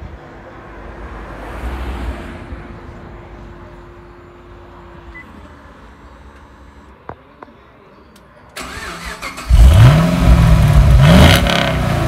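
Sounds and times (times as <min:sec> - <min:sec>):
vehicle passing: 0:00.9 - 0:03.4.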